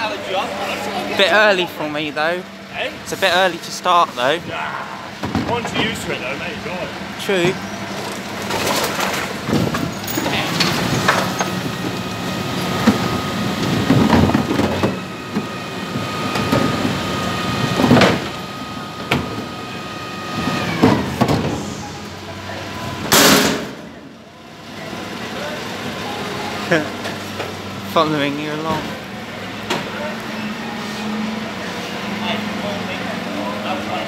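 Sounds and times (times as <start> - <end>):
hydraulic bin lift whine: 0.0 - 34.0
truck engine running: 0.0 - 34.0
bin and rubbish banging and clattering: 8.0 - 11.6, 13.6 - 15.5.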